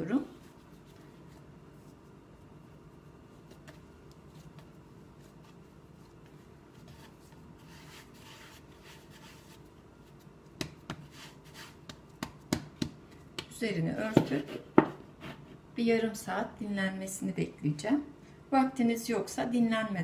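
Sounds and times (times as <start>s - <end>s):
hands kneading dough: 0.0s - 14.7s
hands patting dough: 0.5s - 14.8s.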